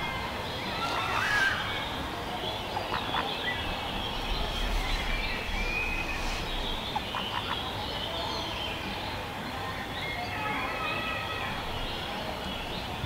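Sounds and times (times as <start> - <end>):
small birds chirping: 0.0 - 13.0
steady low hum: 1.9 - 8.3.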